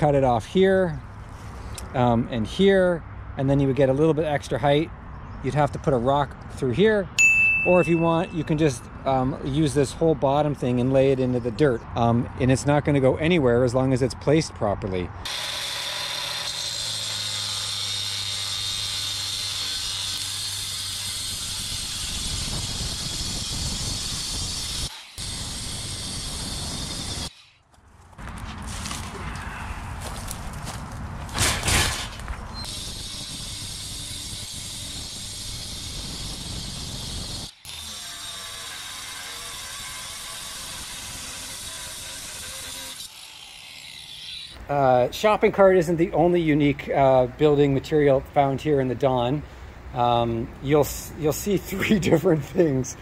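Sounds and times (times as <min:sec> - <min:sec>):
abrasive disc cutting steel: 0:15.2 - 0:27.6, 0:31.3 - 0:44.6.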